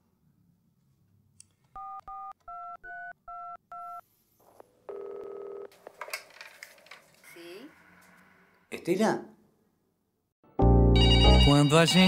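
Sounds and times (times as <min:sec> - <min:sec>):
steady phone line tone: 0:04.9 - 0:05.7.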